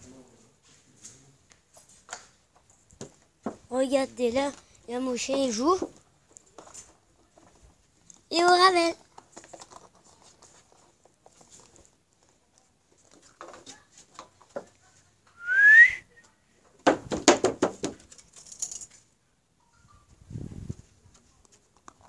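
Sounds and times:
person whistling: 15.4 - 16.2.

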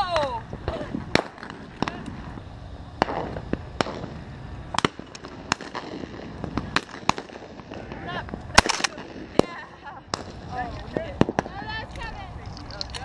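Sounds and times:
distant shotgun shots: 3.0 - 10.5.

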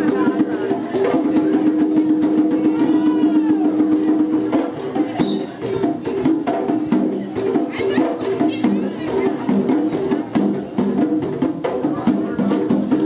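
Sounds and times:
hand drums beating: 0.0 - 13.0.

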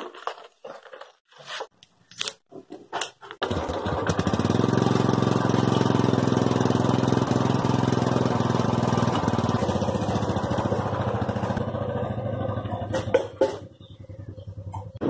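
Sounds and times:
motorcycle engine idling: 3.5 - 15.0.

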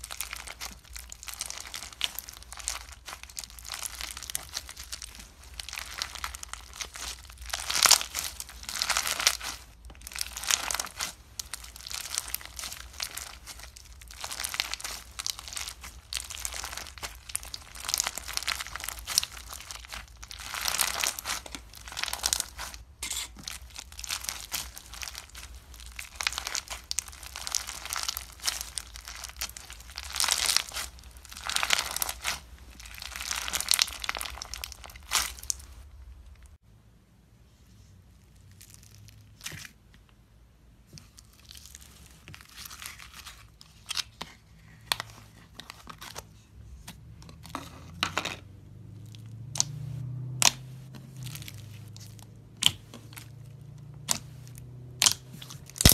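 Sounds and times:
bead slime crackling when squeezed: 0.0 - 36.6, 41.0 - 44.1, 51.2 - 55.9.

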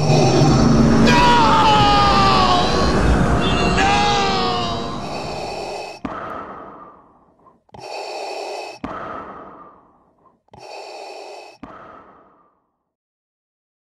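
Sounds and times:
masked respirator breathing: 4.6 - 12.7.

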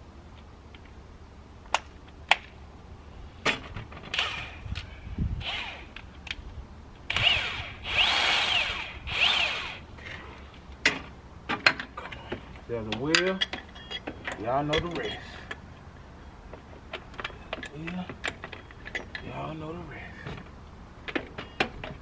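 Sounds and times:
metal tools clanking: 10.8 - 15.6, 17.0 - 19.8.

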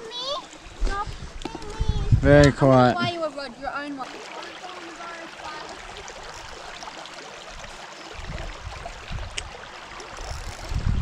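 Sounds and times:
wind rumbling on microphone: 0.6 - 2.6, 7.5 - 11.0
water lapping at lake edge: 2.7 - 11.0.

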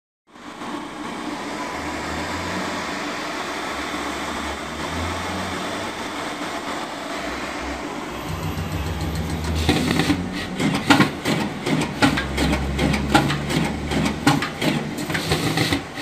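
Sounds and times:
low hum: 7.9 - 10.7.

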